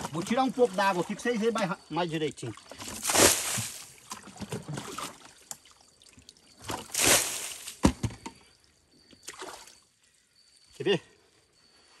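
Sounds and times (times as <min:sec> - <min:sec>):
water splashing and dripping: 0:02.4 - 0:07.9
water tipped from bucket: 0:02.8 - 0:05.2, 0:06.6 - 0:07.9.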